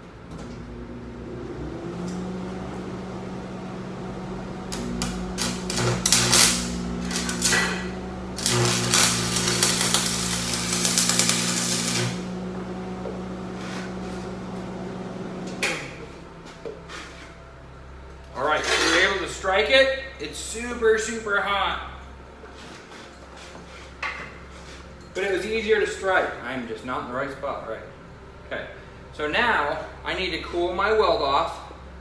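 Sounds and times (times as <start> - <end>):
steady welder hum: 0.0 - 31.5
welding arc crackling and sizzling: 2.5 - 15.8.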